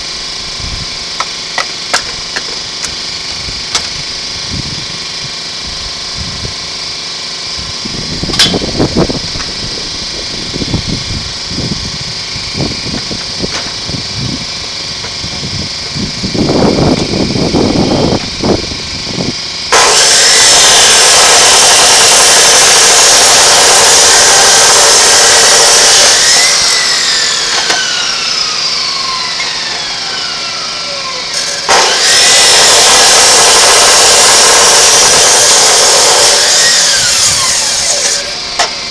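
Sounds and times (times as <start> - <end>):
saw motor winding down whine: 0.0 - 38.9
chop saw grinding steel: 1.1 - 4.4, 8.2 - 10.7, 19.1 - 38.9.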